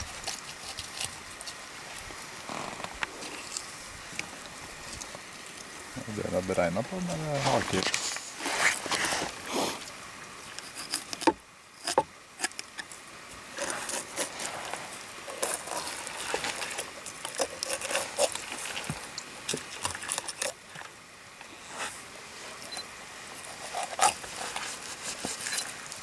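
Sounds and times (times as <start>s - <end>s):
knife slicing and scraping fish: 0.0s - 1.6s, 10.5s - 20.6s, 23.4s - 26.0s.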